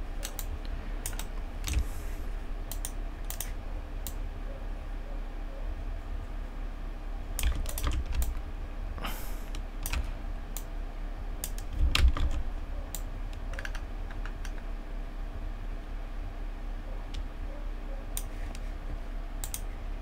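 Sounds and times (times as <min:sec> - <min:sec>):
steady low hum: 0:00.0 - 0:20.0
keyboard keystrokes: 0:00.2 - 0:01.9, 0:07.4 - 0:08.4, 0:09.8 - 0:10.1, 0:11.4 - 0:14.7.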